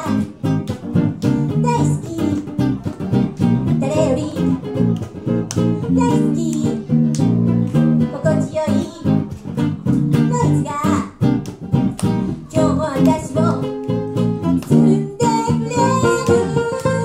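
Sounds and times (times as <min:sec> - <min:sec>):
woman singing into a microphone: 0:00.0 - 0:00.4, 0:01.3 - 0:02.6, 0:03.8 - 0:04.7, 0:05.8 - 0:07.0, 0:08.1 - 0:09.3, 0:10.2 - 0:11.2, 0:12.4 - 0:13.8, 0:14.5 - 0:17.0.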